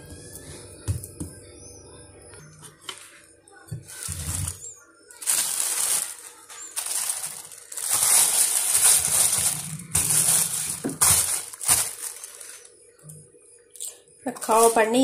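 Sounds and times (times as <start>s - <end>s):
plastic cover crinkling: 3.8s - 12.8s, 14.4s - 15.0s.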